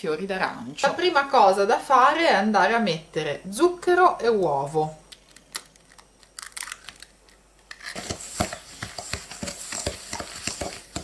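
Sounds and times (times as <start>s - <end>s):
egg cracking clicks: 5.1s - 7.8s
spatula scraping metal bowl: 7.8s - 11.0s.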